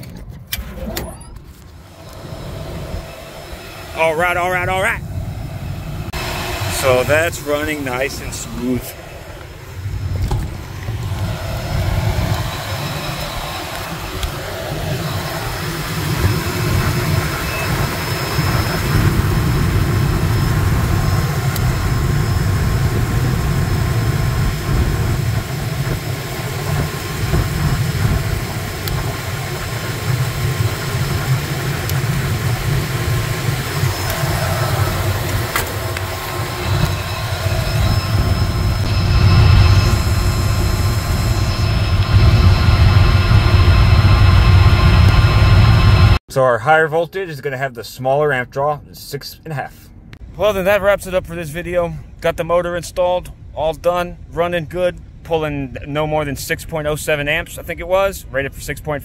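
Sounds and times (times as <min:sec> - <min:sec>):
blower motor rumbling: 0:00.0 - 0:46.2.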